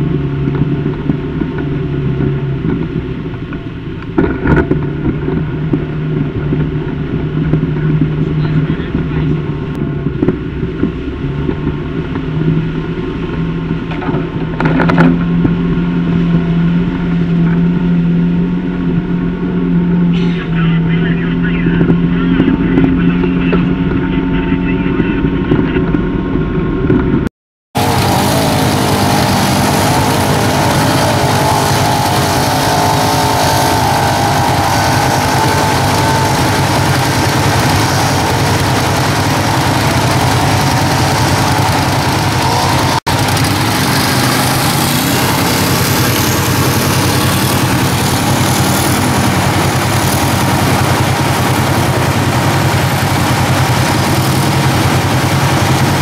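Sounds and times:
quad running through water: 0:00.0 - 0:26.9, 0:27.8 - 0:56.0
atv engine idling: 0:27.8 - 0:56.0
river rushing: 0:27.8 - 0:56.0.

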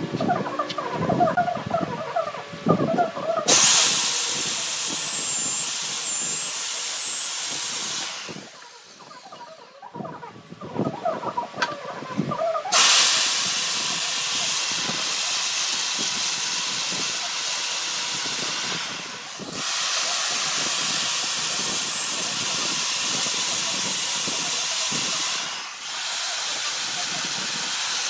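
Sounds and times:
electric chainsaw cutting log: 0:03.4 - 0:09.4, 0:12.7 - 0:28.0.

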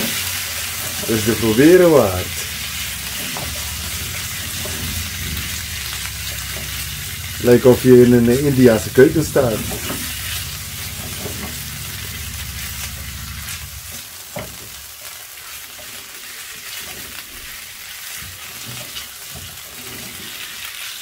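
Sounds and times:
low steady hum: 0:00.0 - 0:14.0
chicken sizzling in frying pan: 0:00.0 - 0:21.0.

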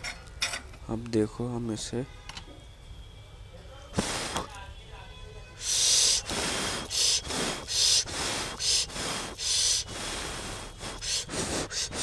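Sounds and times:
person breathing hard: 0:05.6 - 0:12.0.

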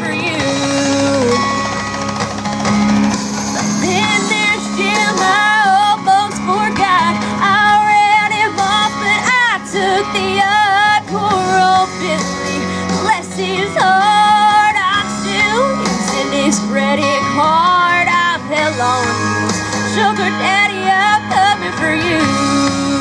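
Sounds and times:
backing music: 0:00.0 - 0:23.0
girl singing into microphone: 0:03.8 - 0:19.0.

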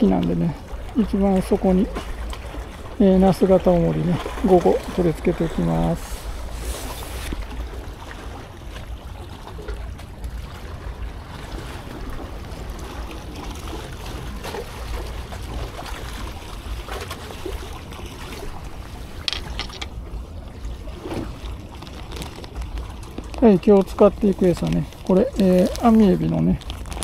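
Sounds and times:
sea water around breakwater: 0:00.0 - 0:27.0
crisp rustling: 0:05.9 - 0:07.4, 0:21.7 - 0:27.0
faint handling noises: 0:19.2 - 0:20.0.

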